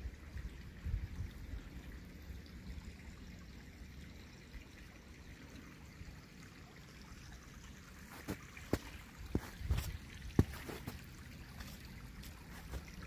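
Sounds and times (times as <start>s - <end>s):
creek trickling: 0.0s - 13.0s
footstep: 8.0s - 13.0s.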